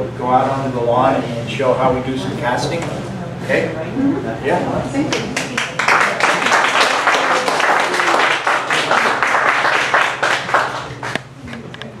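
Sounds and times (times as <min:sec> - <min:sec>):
audience applauding: 0:05.1 - 0:11.2.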